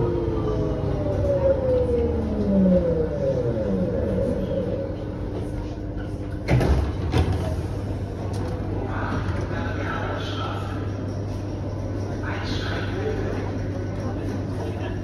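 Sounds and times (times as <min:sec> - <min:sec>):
train motors whining: 0:00.0 - 0:06.1
low running rumble: 0:00.0 - 0:15.0.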